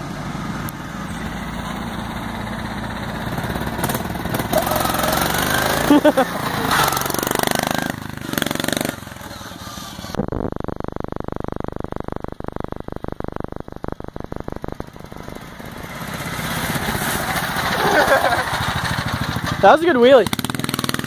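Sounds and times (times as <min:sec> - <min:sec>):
small engine running hard: 0:00.0 - 0:10.2, 0:14.4 - 0:21.0.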